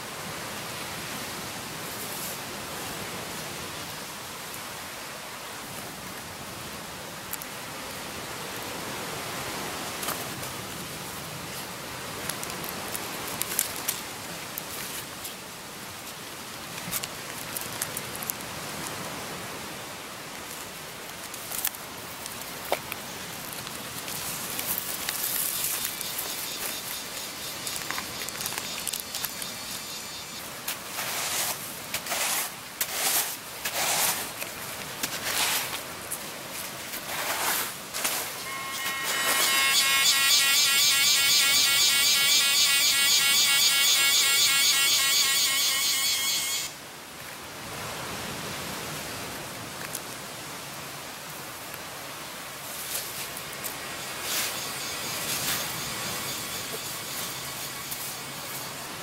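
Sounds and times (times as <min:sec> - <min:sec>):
steady background hiss: 0:00.0 - 0:59.0
leaves rustling and crinkling: 0:01.7 - 0:40.0, 0:45.5 - 0:59.0
scattered crackles: 0:20.4 - 0:31.2.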